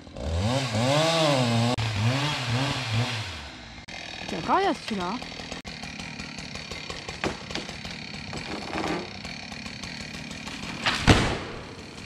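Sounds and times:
small engine idling: 3.7s - 12.0s
sharp cracks: 6.7s - 12.0s.

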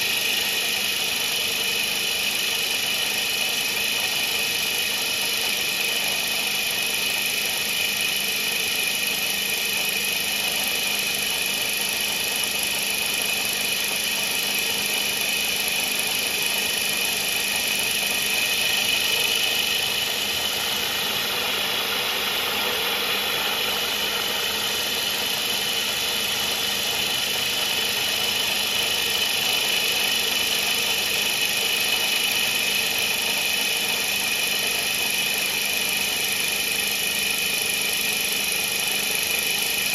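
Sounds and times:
milling machine whine: 0.0s - 39.9s.

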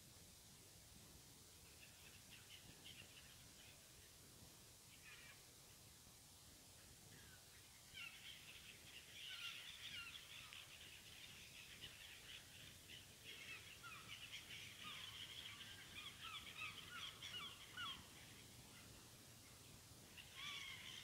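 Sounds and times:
gulls calling: 7.2s - 21.0s.

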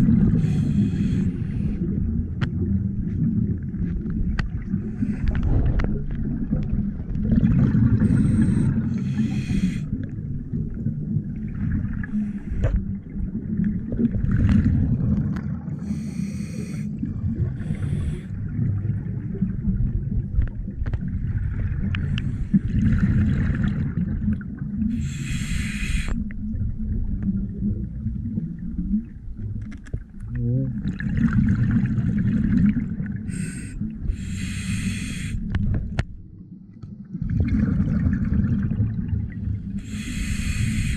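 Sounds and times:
low underwater rumble: 0.0s - 40.9s
scuba regulator breathing: 0.2s - 2.0s, 4.8s - 5.6s, 8.0s - 10.0s, 12.1s - 12.9s, 15.8s - 18.4s, 24.9s - 26.2s, 33.3s - 35.6s, 39.8s - 40.9s.

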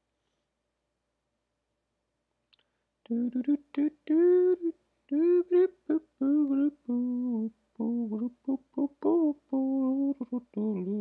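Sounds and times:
person humming: 3.1s - 11.0s.

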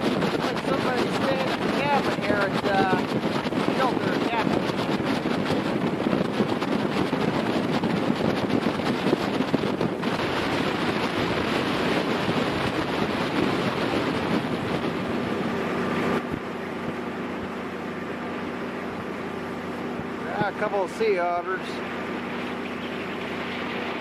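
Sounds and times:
boat engine running: 0.0s - 24.0s
wind rushing over microphone: 0.0s - 24.0s.

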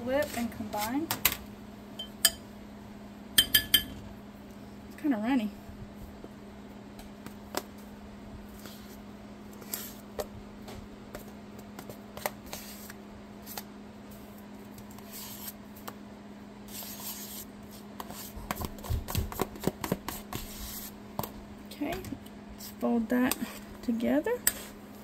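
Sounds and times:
spoon clicking on tub: 3.4s - 4.0s.

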